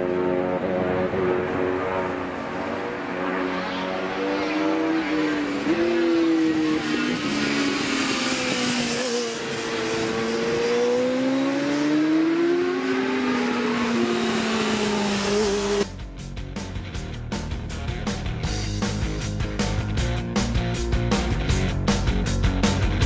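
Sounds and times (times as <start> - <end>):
racing motorcycles passing: 0.0 - 15.9
music with a beat: 15.8 - 23.0.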